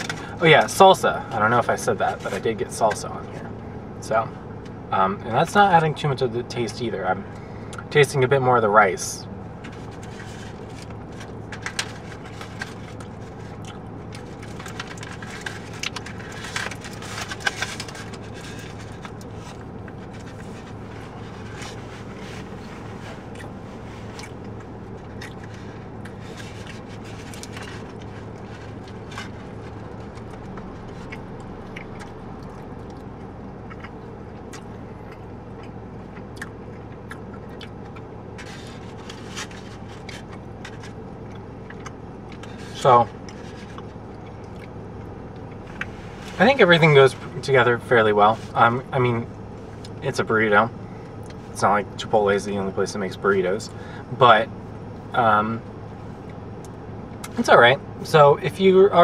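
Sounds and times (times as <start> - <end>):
car cabin hum: 0.0 - 59.0
foil wrapper crinkling: 9.6 - 31.1, 38.4 - 41.0
person biting and chewing: 9.7 - 39.4.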